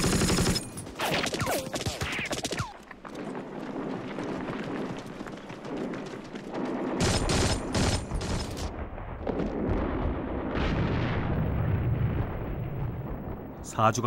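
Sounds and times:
rifle and machine-gun fire: 0.0s - 2.8s, 5.6s - 11.3s.

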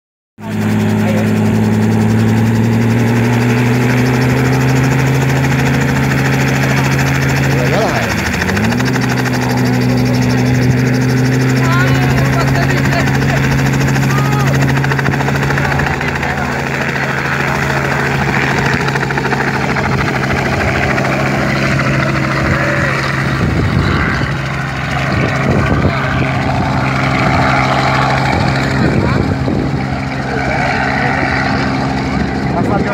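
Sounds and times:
helicopter engine and rotor drone: 0.4s - 32.9s
wind rumble on microphone: 22.4s - 30.2s.

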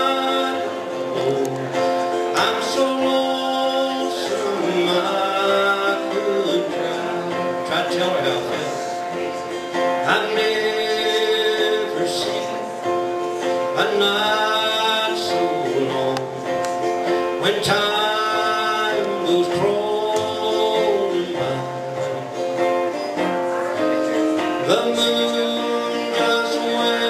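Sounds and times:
acoustic guitar: 0.0s - 27.0s
country music: 0.0s - 27.0s
person singing: 0.0s - 27.0s.

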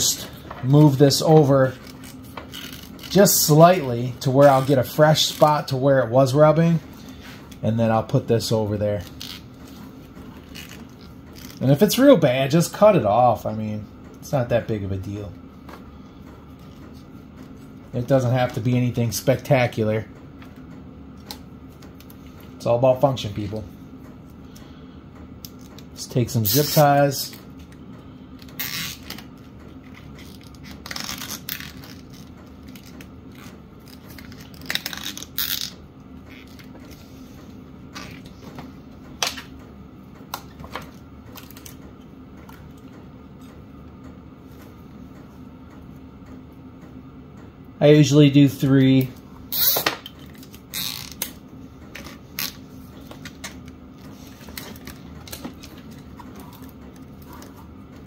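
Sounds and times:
low steady hum: 0.0s - 58.0s
zip tie ratcheting: 28.6s - 29.2s, 29.9s - 36.7s, 49.5s - 49.9s, 50.7s - 51.4s.

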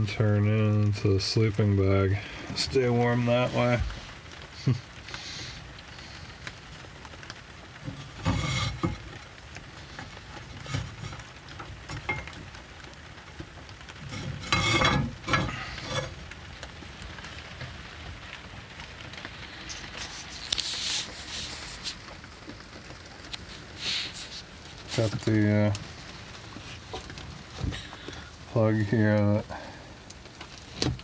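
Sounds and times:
rustling: 2.3s - 31.0s
metal lid scraping and clunking: 7.8s - 9.2s, 10.0s - 12.5s, 14.0s - 16.2s.

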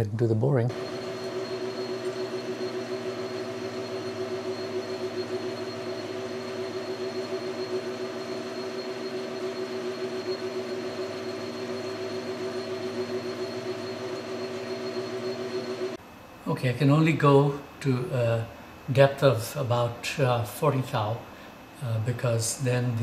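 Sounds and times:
metal lathe motor and gear hum: 0.7s - 16.0s.

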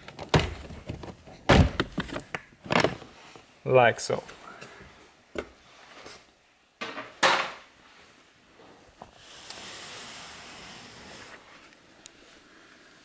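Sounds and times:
soft rustling hiss: 7.7s - 13.0s.

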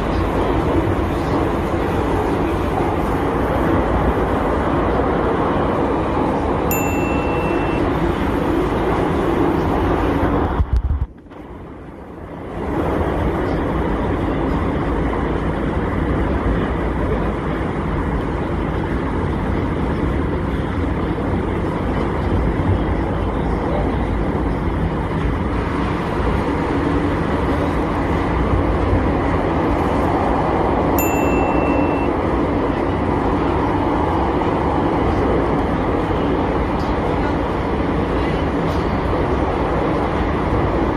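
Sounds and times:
train rumble and rattle: 0.0s - 40.9s
short high tone: 6.7s - 8.0s, 31.0s - 32.2s.

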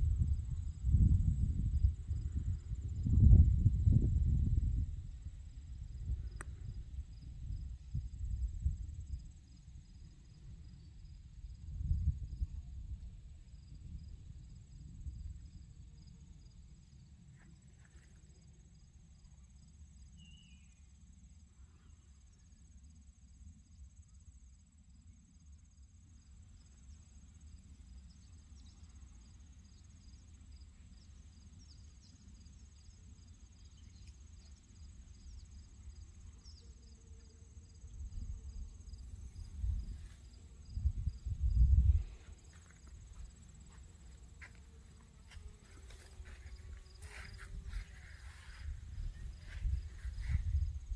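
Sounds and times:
low rumble on microphone: 0.0s - 16.2s, 37.8s - 50.9s.

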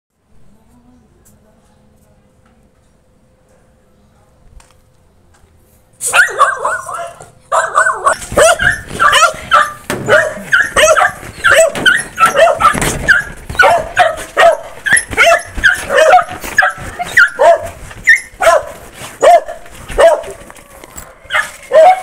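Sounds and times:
dogs yipping and barking: 6.0s - 22.0s.

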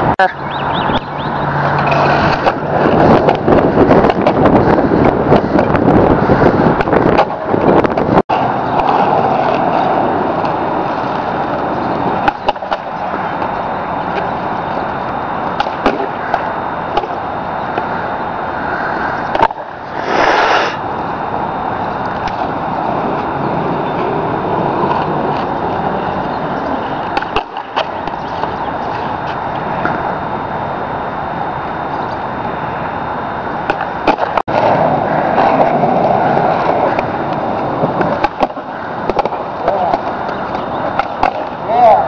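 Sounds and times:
skateboard wheels rolling on concrete: 0.0s - 42.0s
skateboard clacks: 1.7s - 5.9s, 6.8s - 17.9s, 19.3s - 20.4s, 24.0s - 30.0s, 33.7s - 41.8s.

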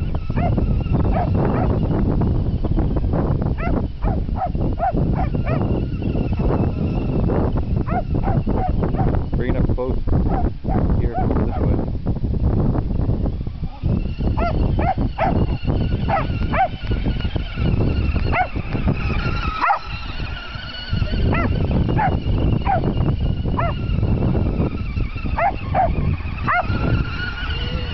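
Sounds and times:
small dog yipping: 3.6s - 5.7s, 14.4s - 15.5s, 16.1s - 16.8s, 18.3s - 18.6s, 19.4s - 19.9s, 23.6s - 23.8s, 25.4s - 26.8s.

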